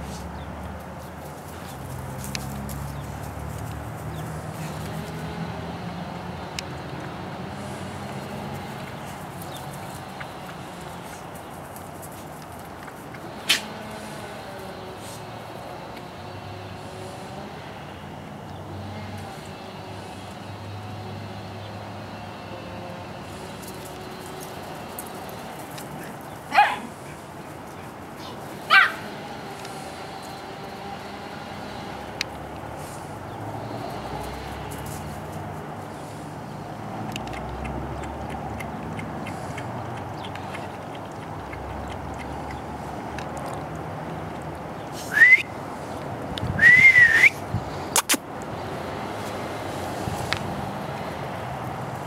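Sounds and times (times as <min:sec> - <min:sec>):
dog barking high-pitched: 0:26.5 - 0:26.9, 0:28.7 - 0:29.0
person whistling: 0:45.1 - 0:45.5, 0:46.6 - 0:47.4
quick clicks: 0:47.9 - 0:48.2.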